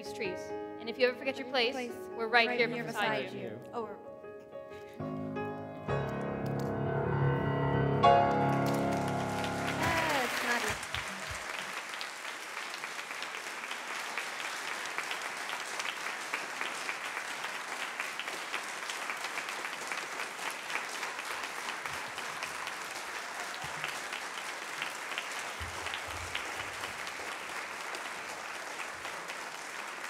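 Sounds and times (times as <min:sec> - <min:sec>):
crowd applauding: 0:08.1 - 0:30.0.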